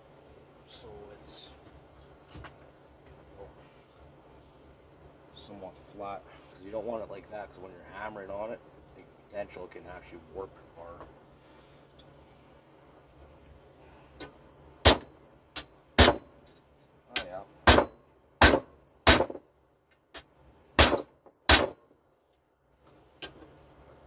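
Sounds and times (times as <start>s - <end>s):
hammer striking metal: 14.8s - 16.3s, 17.2s - 19.4s, 20.8s - 21.8s.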